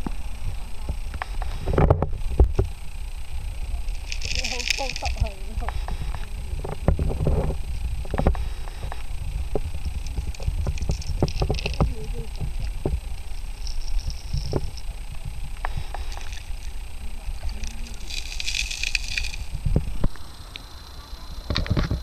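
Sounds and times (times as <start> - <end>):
underwater stream rumble: 0.0 - 22.0.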